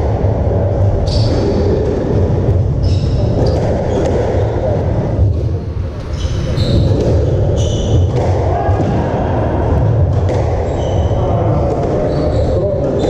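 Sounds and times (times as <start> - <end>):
low background rumble: 0.0 - 11.8
shoes squeaking on wooden floor: 6.0 - 8.1, 10.7 - 11.2
ball smacking racket and walls: 6.0 - 13.0.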